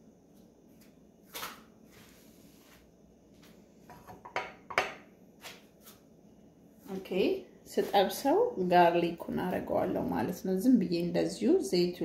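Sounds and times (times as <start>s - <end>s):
dishes clicking and knocking: 3.9s - 5.1s.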